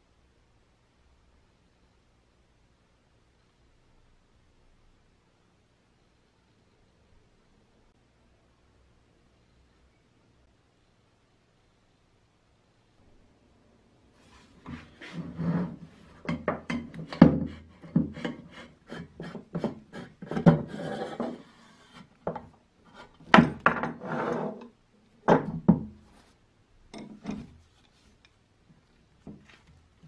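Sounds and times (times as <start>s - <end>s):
plunger rod scraping: 14.2s - 24.7s
metal and wood knocks: 16.2s - 21.4s, 22.2s - 22.5s, 23.1s - 24.0s, 25.3s - 26.0s.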